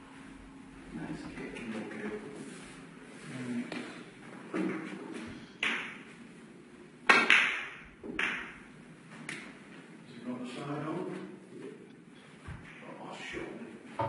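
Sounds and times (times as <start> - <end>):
snooker balls clicking: 7.1 - 8.7.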